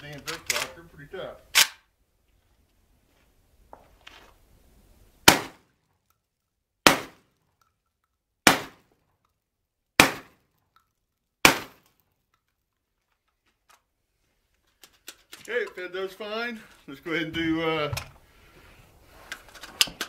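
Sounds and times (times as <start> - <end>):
shotgun shots: 5.2 - 5.7, 6.8 - 7.3, 8.4 - 8.9, 10.0 - 10.4, 11.4 - 11.9.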